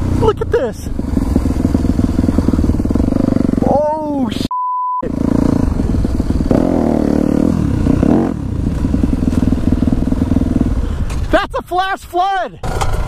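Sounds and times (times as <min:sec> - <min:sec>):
dirt bike engine revving: 0:00.0 - 0:04.3, 0:05.0 - 0:11.0.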